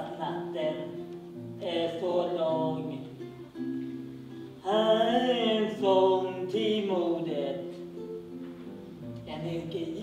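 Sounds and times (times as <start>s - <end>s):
acoustic guitar: 0.0s - 10.0s
person singing: 9.2s - 10.0s.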